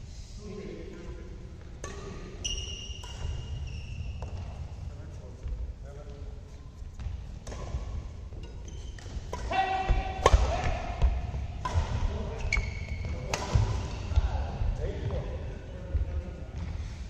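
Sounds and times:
rackets striking shuttlecock: 1.8 - 4.5, 7.0 - 13.9
shoes squeaking on court floor: 1.9 - 4.8, 6.5 - 10.3, 11.0 - 14.2.

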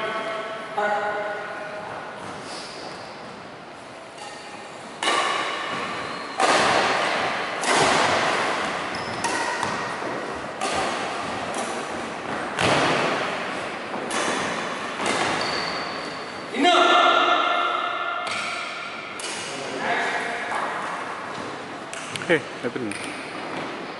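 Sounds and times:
badminton shuttlecock hits: 4.2 - 15.4, 17.6 - 19.6.

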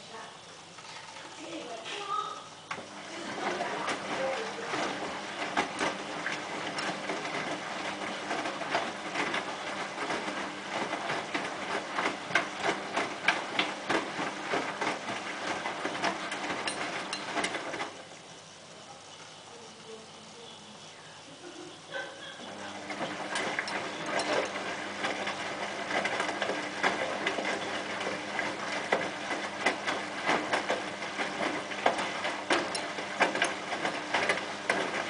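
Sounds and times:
washing machine drum tumbling: 1.4 - 19.1, 21.4 - 35.0
wet load clicking and knocking: 2.7 - 18.0, 22.7 - 35.0.

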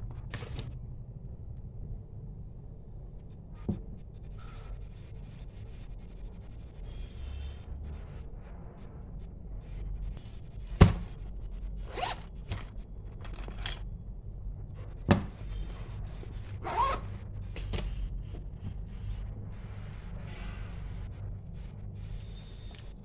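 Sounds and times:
zipper being pulled: 11.8 - 12.4, 16.4 - 17.2.

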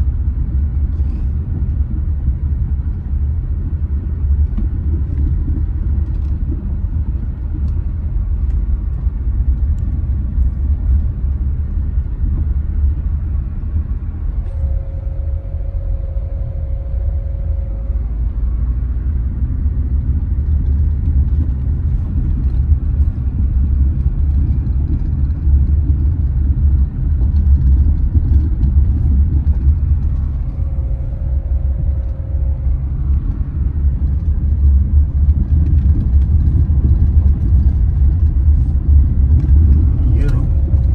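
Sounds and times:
car road rumble: 0.0 - 40.9
faint held tone: 14.3 - 19.0, 30.1 - 33.6.

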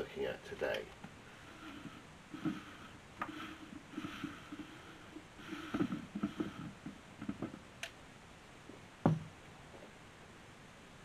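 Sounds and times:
plastic threads creaking and scraping: 0.7 - 7.9.

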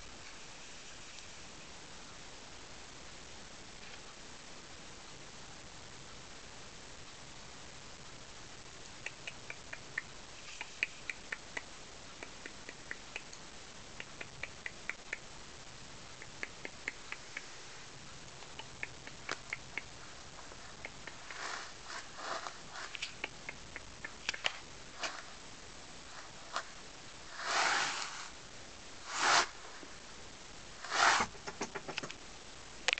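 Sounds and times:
soft rustling: 19.2 - 28.4, 29.0 - 30.0.

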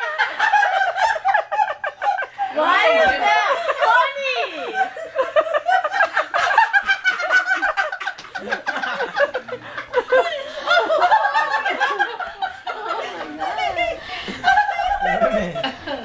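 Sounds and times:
woman laughing: 0.6 - 16.0.

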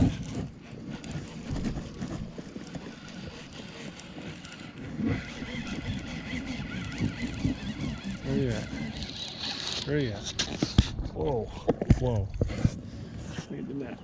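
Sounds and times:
wind buffeting microphone: 0.0 - 9.4.

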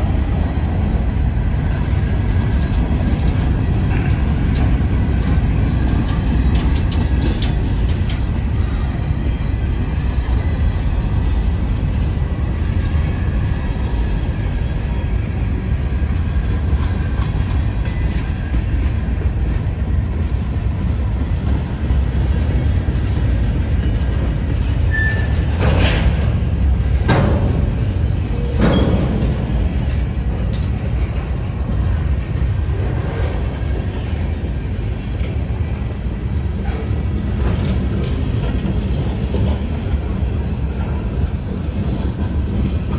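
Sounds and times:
freight train wheels rumbling: 0.0 - 42.9.

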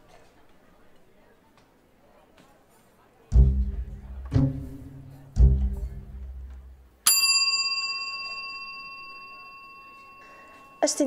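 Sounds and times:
low double bass notes: 3.3 - 7.0
bright bell strike ringing: 7.0 - 11.0.

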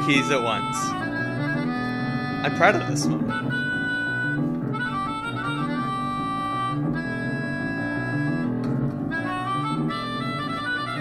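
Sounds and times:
keyboard and melodica music: 0.0 - 11.0.

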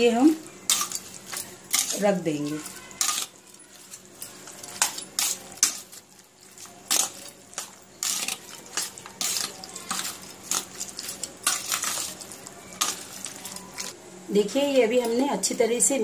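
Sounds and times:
fork scraping metal bowl: 0.6 - 13.9.

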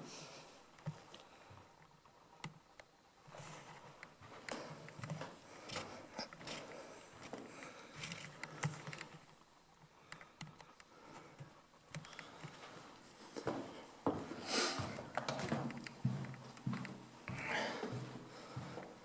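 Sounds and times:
footsteps on gritty carpet: 3.3 - 7.5, 12.6 - 18.8.

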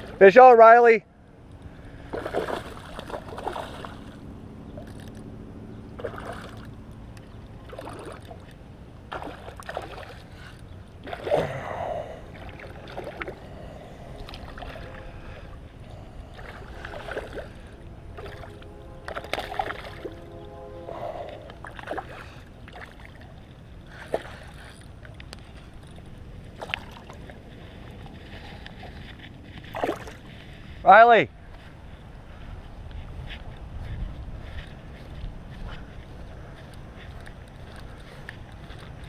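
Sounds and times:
fish thrashing and splashing: 2.0 - 5.2, 6.0 - 20.2, 20.9 - 30.4.

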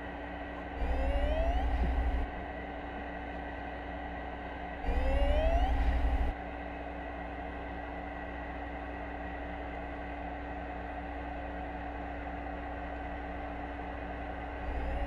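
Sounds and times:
underwater noise with low hum: 0.5 - 2.4, 4.8 - 6.3, 14.6 - 15.0.

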